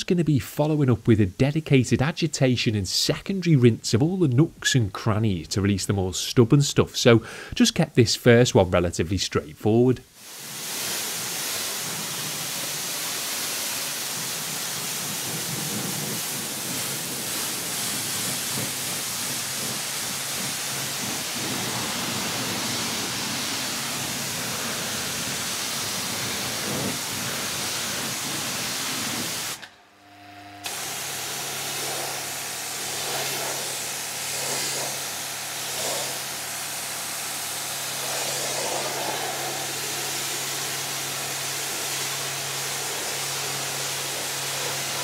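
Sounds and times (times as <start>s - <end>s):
pressure washer spraying water: 10.2s - 29.7s, 30.6s - 45.0s.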